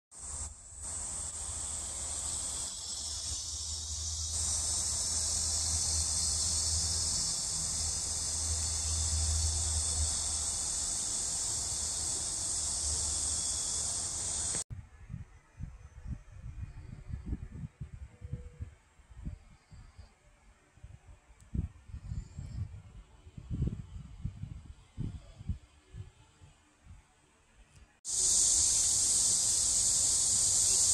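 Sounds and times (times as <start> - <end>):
cicadas buzzing: 0.1 - 14.6, 28.1 - 30.9.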